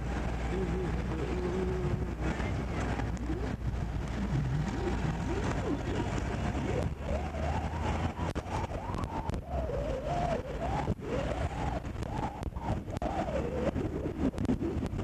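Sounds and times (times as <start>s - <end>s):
vehicle rumble and wind noise: 0.0s - 15.0s
siren wailing: 4.2s - 14.4s.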